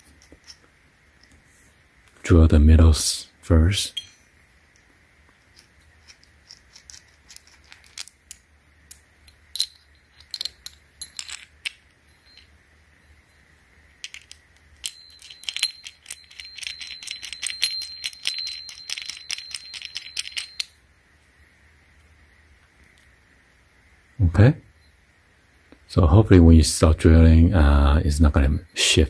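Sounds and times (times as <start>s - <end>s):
steel parts clinking together: 3.9s - 4.9s, 5.5s - 12.6s, 14.0s - 20.8s.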